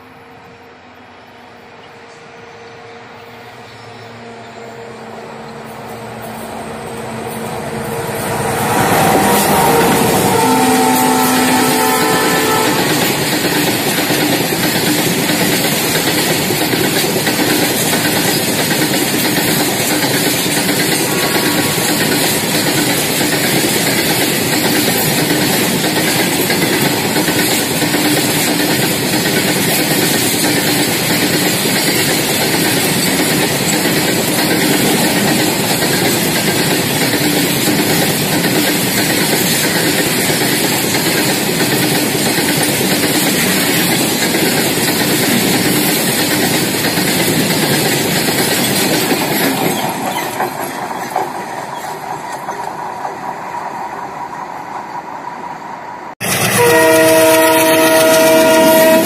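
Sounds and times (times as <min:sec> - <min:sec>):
freight train wheels clattering: 0:05.5 - 0:55.1, 0:56.2 - 0:59.0.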